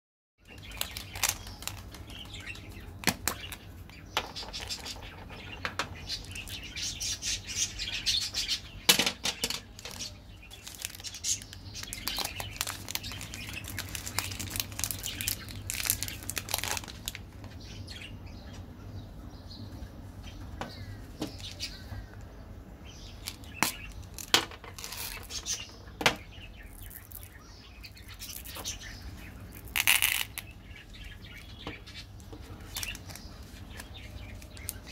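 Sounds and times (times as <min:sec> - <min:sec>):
candy wrappers crinkling and tearing: 0:00.5 - 0:03.6, 0:09.5 - 0:17.4, 0:23.2 - 0:25.6, 0:26.7 - 0:27.4, 0:28.0 - 0:30.5, 0:32.6 - 0:34.9.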